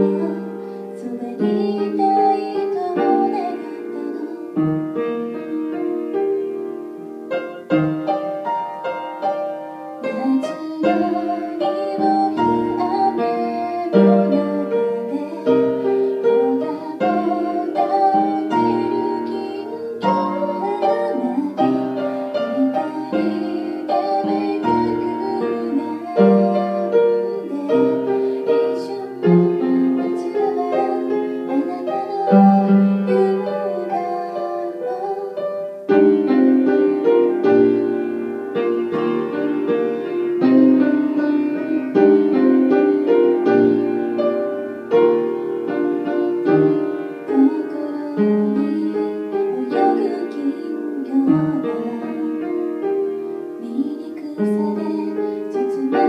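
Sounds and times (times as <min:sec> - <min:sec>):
woman singing: 0:00.0 - 0:06.5, 0:10.0 - 0:44.2, 0:44.9 - 0:56.0
grand piano ballad accompaniment: 0:00.0 - 0:56.0.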